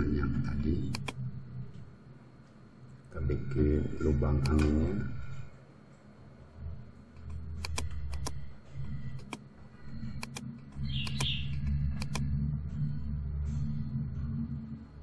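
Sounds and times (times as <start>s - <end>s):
low uneven hum: 0.0s - 15.0s
computer mouse clicking: 0.9s - 1.2s, 4.4s - 4.8s, 7.2s - 8.4s, 9.1s - 9.4s, 10.1s - 12.3s.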